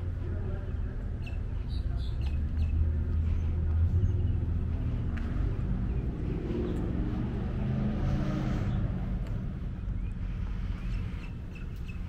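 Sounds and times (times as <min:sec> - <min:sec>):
car engine revving: 0:02.9 - 0:11.3.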